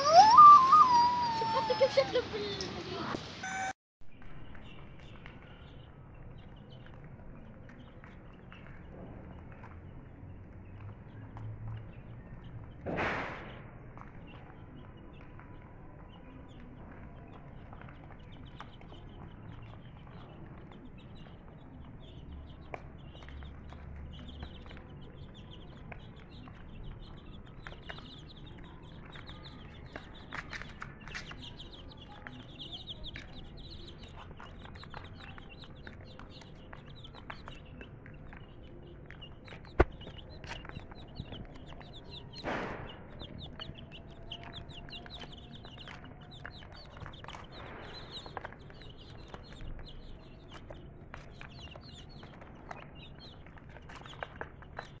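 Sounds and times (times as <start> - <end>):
chicks peeping: 0.0 - 3.8, 4.5 - 55.0
sharp knock: 12.9 - 13.6.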